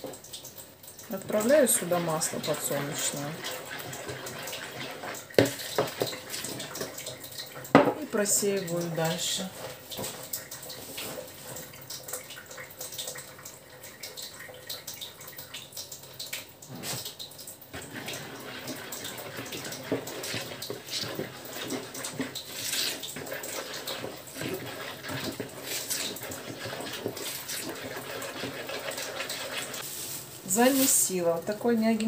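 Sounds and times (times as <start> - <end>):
hands mixing dough: 0.0 - 32.0
spoon scraping plastic bowl: 2.0 - 7.0, 16.7 - 17.0, 17.8 - 31.1.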